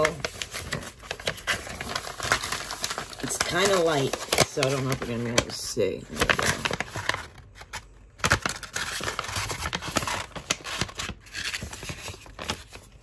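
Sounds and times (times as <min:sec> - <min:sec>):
stiff paper rustling and crackling: 0:00.0 - 0:13.0.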